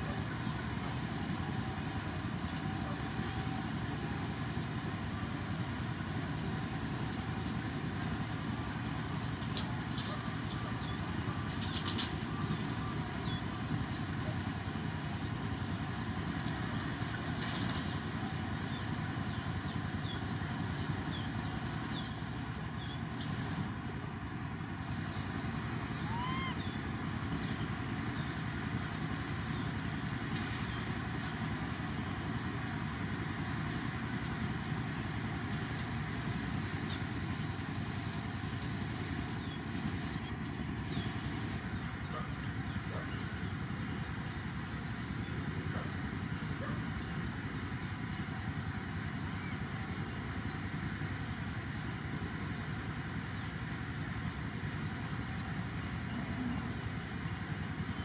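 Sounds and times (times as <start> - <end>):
low rumbling background noise: 0.0 - 58.0
baby monkey squeak: 26.0 - 26.7.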